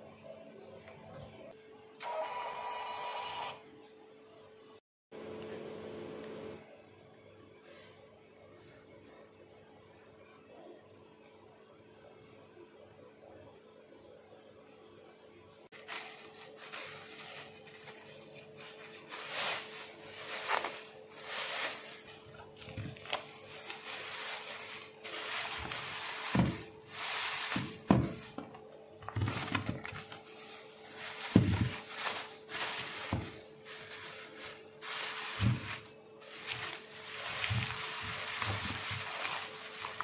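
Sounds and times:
plastic bags rustling and crinkling: 15.7 - 40.0
dull thuds of packs set down: 25.4 - 26.8, 27.4 - 30.2, 31.2 - 33.4, 35.3 - 40.0.

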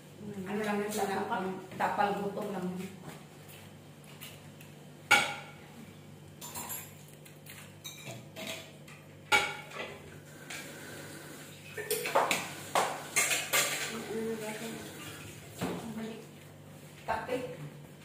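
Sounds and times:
dishes and cutlery clinking: 6.4 - 10.7, 11.7 - 15.3.

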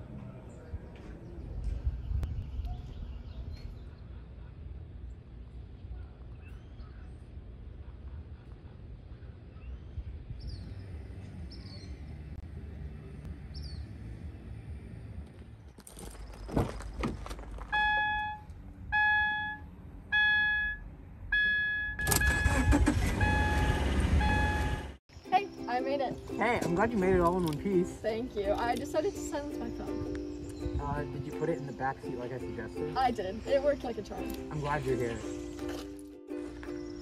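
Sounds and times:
car warning chime beeping: 17.7 - 25.0
car engine starting and running: 21.8 - 25.0.

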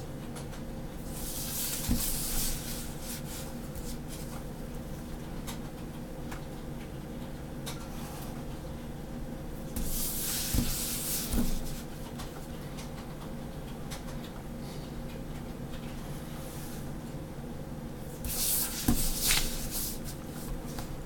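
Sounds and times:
paper and ruler sliding: 18.2 - 20.2.

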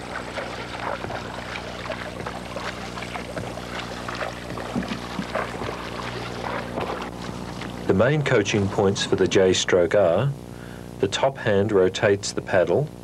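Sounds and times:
paddle splashing water: 0.0 - 9.8
steady low hum: 0.0 - 13.0.

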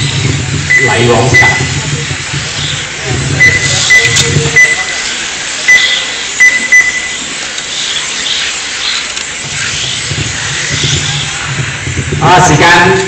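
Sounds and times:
whirring hiss of small electric cars: 0.0 - 13.0
short high electronic beeps: 0.7 - 1.8, 3.4 - 7.3.

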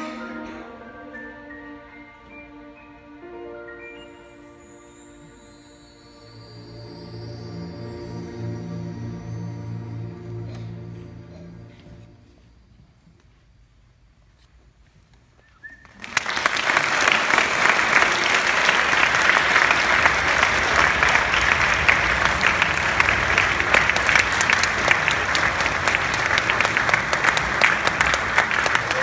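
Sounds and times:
string orchestra: 0.0 - 12.6, 16.8 - 29.0
audience applause: 15.8 - 29.0.

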